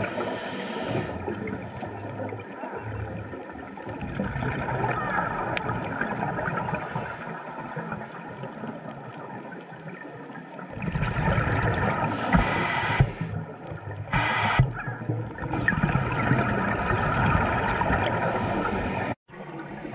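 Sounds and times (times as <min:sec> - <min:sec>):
hissing regulator breaths: 0:00.0 - 0:02.0, 0:12.1 - 0:13.4, 0:14.1 - 0:14.7, 0:18.2 - 0:19.2
muffled underwater noise: 0:00.0 - 0:09.0
bubbling rumble: 0:01.1 - 0:06.9, 0:09.2 - 0:12.6, 0:13.2 - 0:19.9.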